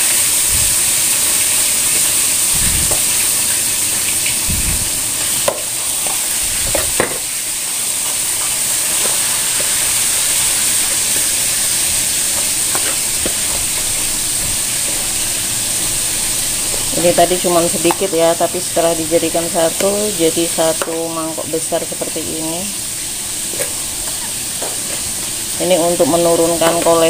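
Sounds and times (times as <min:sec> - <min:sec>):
steady loud hiss: 0:00.0 - 0:27.0
spoon tossing vegetables in bowl: 0:10.5 - 0:15.8.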